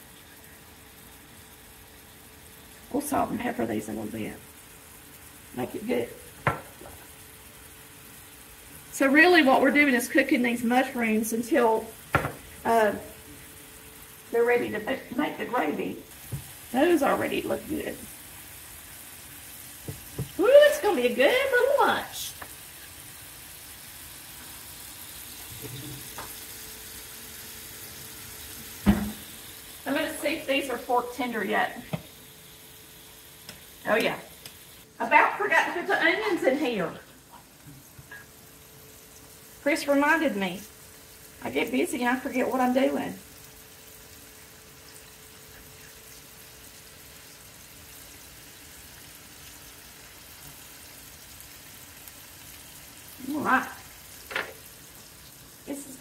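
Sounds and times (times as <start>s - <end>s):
food sizzling in pans: 0.0s - 56.0s
patties frying in skillets: 0.0s - 56.0s.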